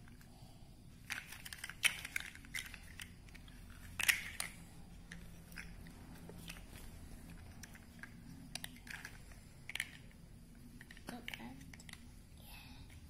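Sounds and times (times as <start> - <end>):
plastic building blocks clattering: 1.0 - 10.2, 10.8 - 12.1.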